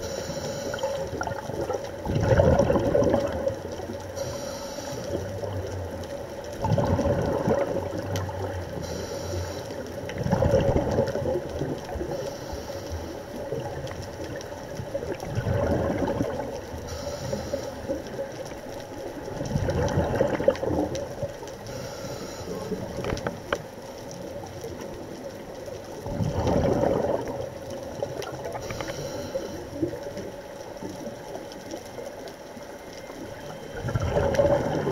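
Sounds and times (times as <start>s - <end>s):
faint hum: 0.0s - 34.9s
exhaled bubbles rushing: 0.8s - 4.0s, 5.2s - 8.8s, 10.0s - 12.2s, 13.4s - 16.9s, 19.0s - 21.4s, 26.0s - 28.7s, 33.2s - 34.9s.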